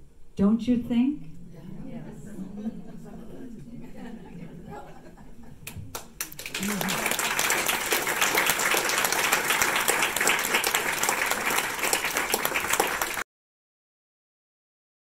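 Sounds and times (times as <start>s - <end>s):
audience applauding: 5.6s - 13.2s.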